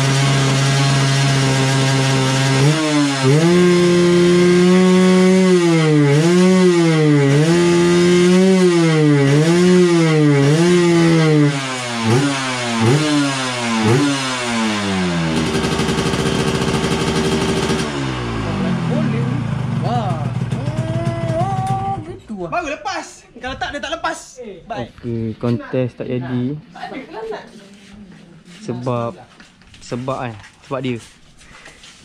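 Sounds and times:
motorcycle engine revving: 0.0s - 22.2s.

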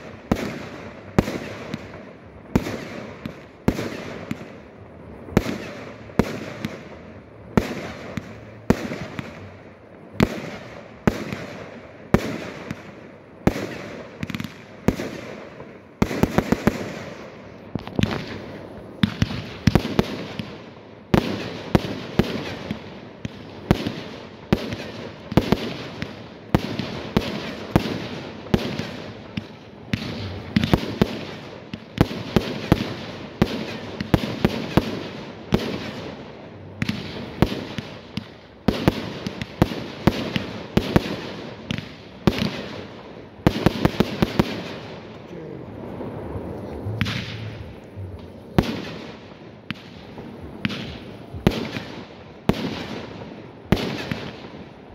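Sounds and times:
fireworks bangs with echo: 0.0s - 54.9s.

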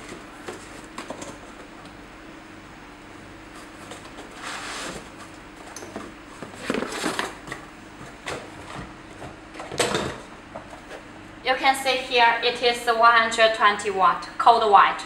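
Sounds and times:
cardboard rustling and scraping: 0.0s - 1.7s, 3.5s - 9.4s.

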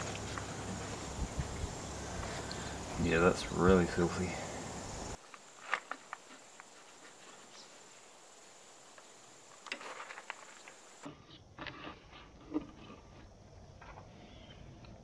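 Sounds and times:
faint high whine: 0.0s - 11.0s.

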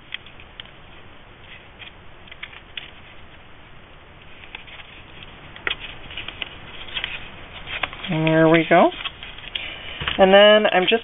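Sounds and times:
paper rustling and crinkling: 4.2s - 11.0s.

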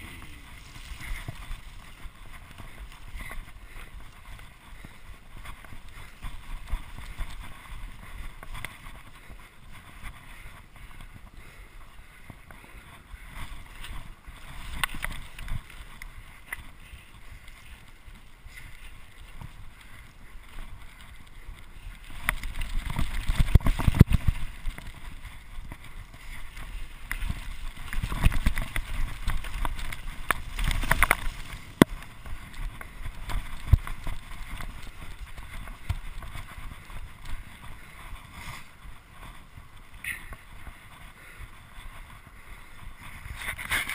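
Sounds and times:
bike rattling over bumps: 0.0s - 43.9s
bike tyres on dirt: 0.0s - 43.9s
wind on microphone: 13.2s - 40.9s.

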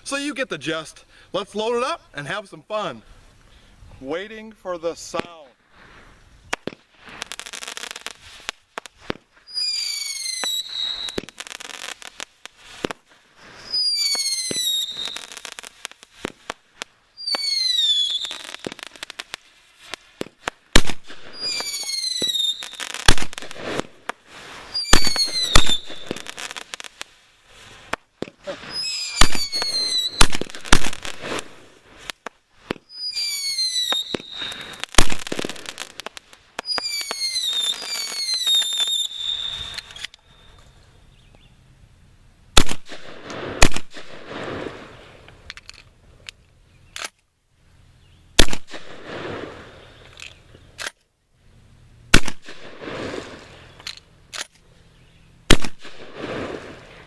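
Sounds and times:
firework bangs: 4.9s - 40.0s, 42.5s - 45.2s, 48.4s - 49.9s, 52.1s - 53.6s, 55.5s - 57.0s
firework whistles: 5.7s - 40.8s
shotgun blasts: 24.8s - 26.4s, 28.2s - 31.6s, 42.6s - 44.7s, 48.4s - 49.6s, 52.1s - 53.4s, 55.5s - 56.7s.

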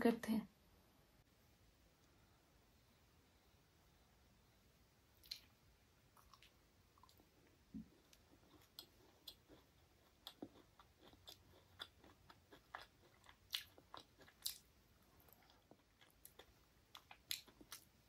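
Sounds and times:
person chewing: 5.2s - 5.5s, 6.1s - 18.0s.

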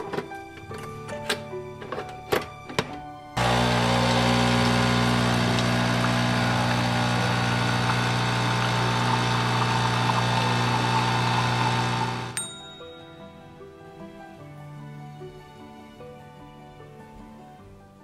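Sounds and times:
coffee machine pump buzzing: 3.4s - 12.4s
coffee pouring into cup: 3.4s - 12.4s.

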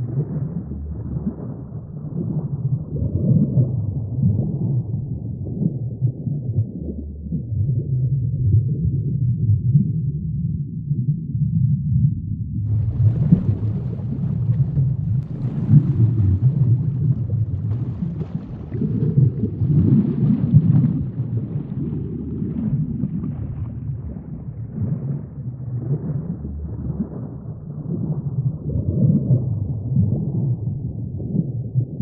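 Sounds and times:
underwater sea rumble: 0.0s - 32.0s.

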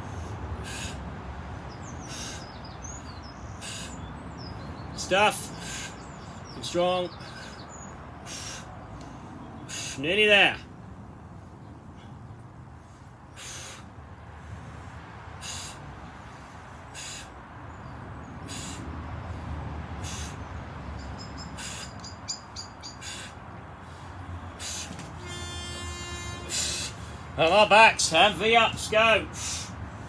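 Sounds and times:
man breathing hard: 0.0s - 2.6s, 3.5s - 4.1s, 5.4s - 6.4s, 7.2s - 10.0s, 11.4s - 20.6s, 21.5s - 22.0s, 22.9s - 25.3s, 26.2s - 27.4s, 29.3s - 30.0s
bird chirping: 1.6s - 10.0s, 20.0s - 23.4s.

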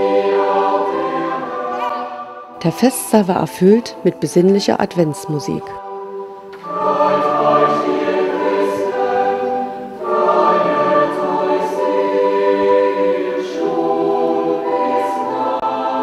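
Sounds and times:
recorders playing: 0.0s - 12.4s
choir singing sustained chords: 0.0s - 16.0s.

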